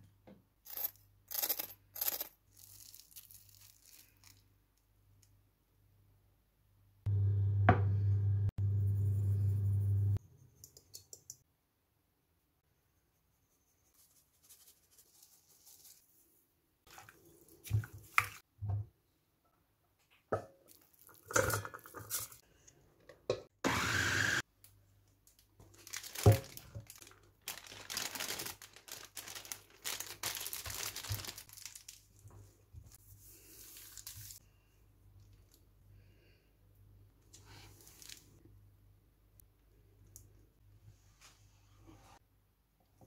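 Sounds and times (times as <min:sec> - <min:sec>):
crinkling and rustling: 0:02.5 - 0:04.9, 0:25.1 - 0:34.4, 0:37.6 - 0:38.4.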